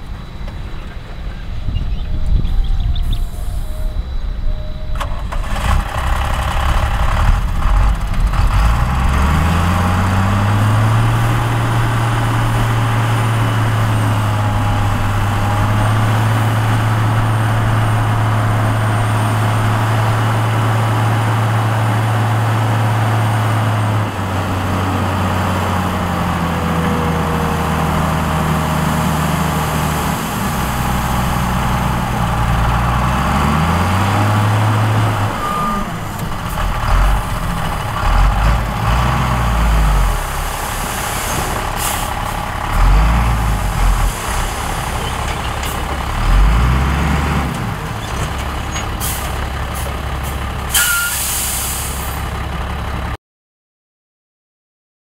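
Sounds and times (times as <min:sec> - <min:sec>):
diesel engine revving: 0:02.3 - 0:53.2
air brake hisses: 0:50.7 - 0:52.2.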